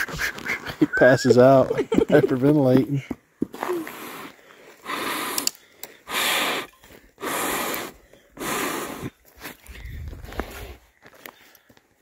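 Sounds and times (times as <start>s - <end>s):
person blowing on fire: 3.5s - 9.2s
quiet breaths: 3.6s - 12.0s.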